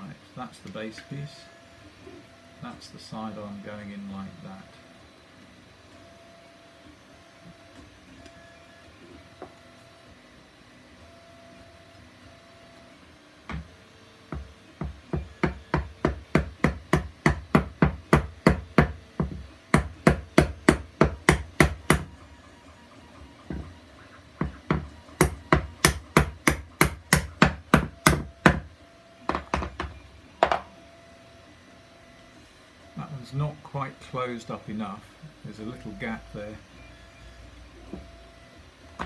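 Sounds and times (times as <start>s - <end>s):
hammer striking wooden block: 14.3s - 22.1s, 24.4s - 28.7s.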